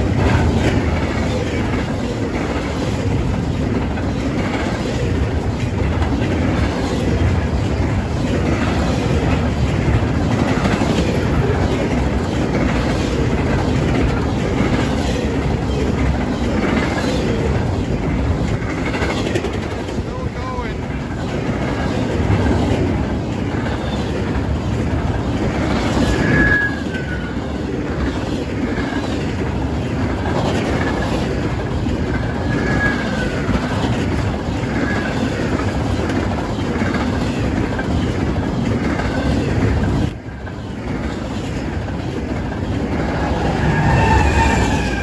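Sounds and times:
train cars rolling on track: 0:00.0 - 0:45.0
wheel squeals: 0:25.8 - 0:27.6, 0:32.2 - 0:33.8, 0:42.5 - 0:45.0.

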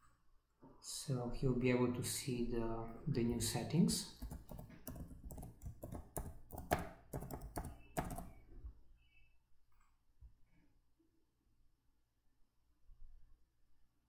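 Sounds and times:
computer keyboard typing: 0:04.2 - 0:08.4.

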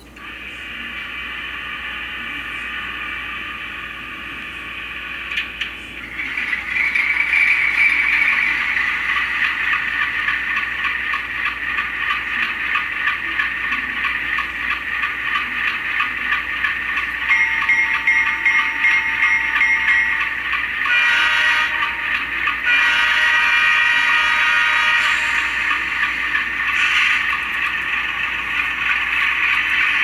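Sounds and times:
diesel locomotive idling through speaker: 0:00.0 - 0:30.0
locomotive horn blasts: 0:20.8 - 0:25.6.

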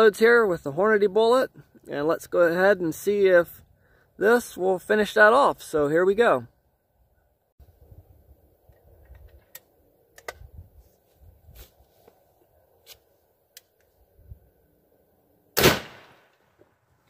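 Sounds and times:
rifle shot: 0:15.6 - 0:16.4.

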